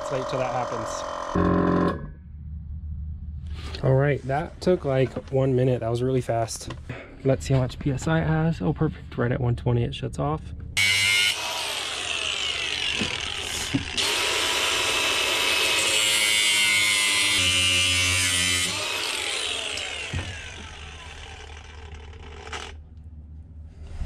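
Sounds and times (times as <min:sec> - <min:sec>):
angle grinder cutting steel: 0:00.0 - 0:02.1, 0:10.8 - 0:22.8.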